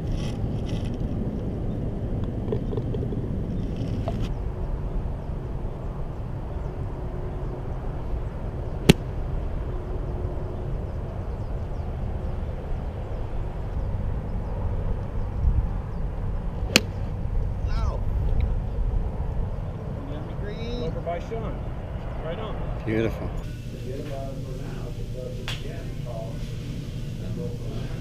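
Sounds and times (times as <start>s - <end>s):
steady low rumble: 0.0s - 20.1s
golf club striking ball: 8.8s - 9.2s, 16.6s - 17.1s.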